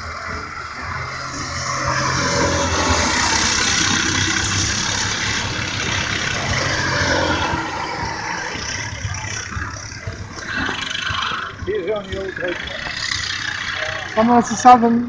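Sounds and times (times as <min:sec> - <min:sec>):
kart engines buzzing: 0:00.0 - 0:15.0.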